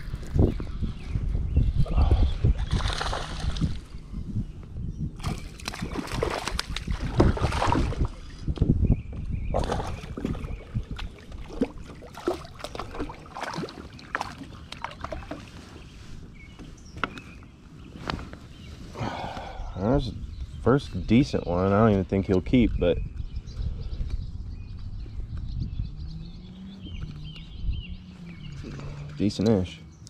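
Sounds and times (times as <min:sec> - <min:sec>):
water splashing around kayak: 0:05.2 - 0:08.5, 0:09.5 - 0:16.2.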